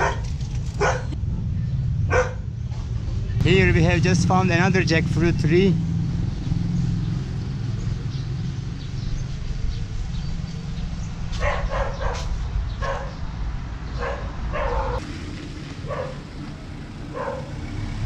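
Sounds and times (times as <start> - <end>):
dog barking: 0.0 - 1.4, 2.1 - 2.5, 11.3 - 13.2, 13.9 - 15.0, 15.8 - 16.2, 17.1 - 17.6.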